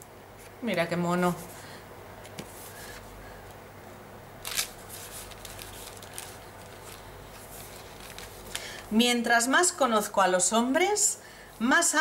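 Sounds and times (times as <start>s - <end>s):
paper pages rustling: 4.4s - 8.9s.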